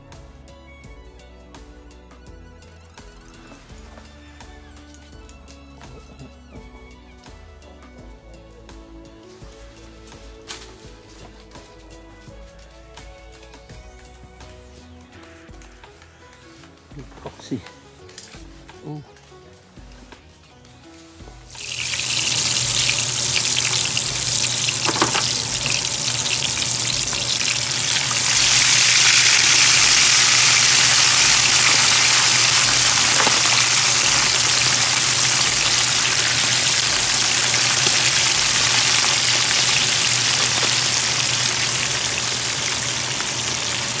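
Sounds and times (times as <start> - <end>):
fish sizzling in hot oil: 21.5 - 44.0.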